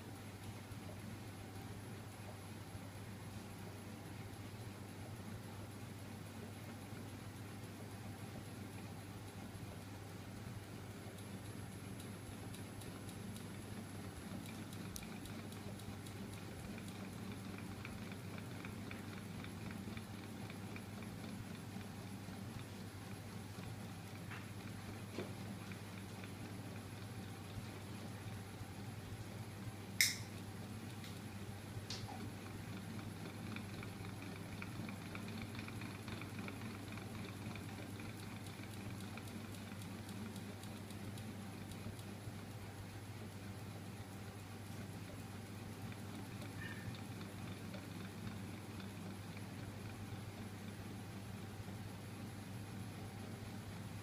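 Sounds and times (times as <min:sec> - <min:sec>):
rapid light clicks: 0:08.4 - 0:22.8, 0:30.0 - 0:44.0.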